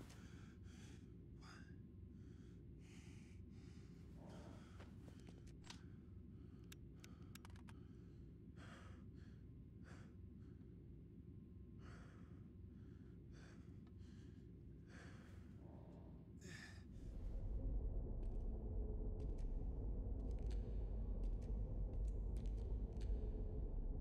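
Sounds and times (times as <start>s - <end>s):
man breathing faintly: 0.0s - 10.7s, 11.7s - 17.4s
low ambient hum: 0.0s - 24.0s
light clicks: 6.6s - 7.8s.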